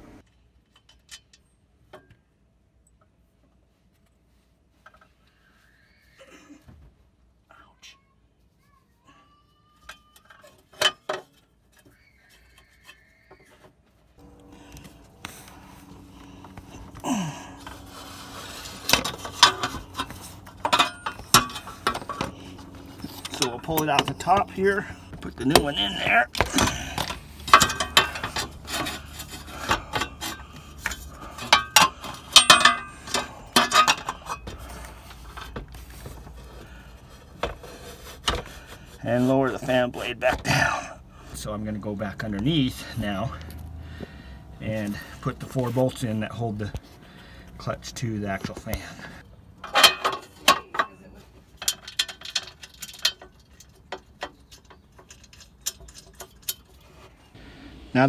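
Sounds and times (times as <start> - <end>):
metal parts knocking and scraping: 9.9 - 13.6, 17.6 - 40.7, 48.3 - 57.3.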